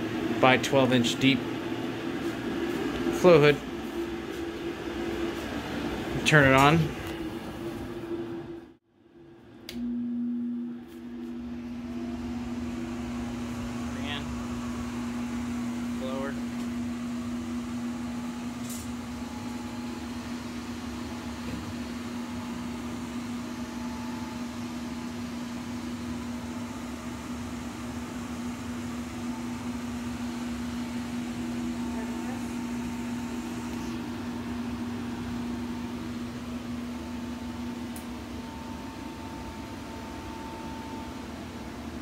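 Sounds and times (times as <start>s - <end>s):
air rushing through filters: 0.0s - 8.8s, 9.7s - 40.4s
blower humming: 0.0s - 42.0s.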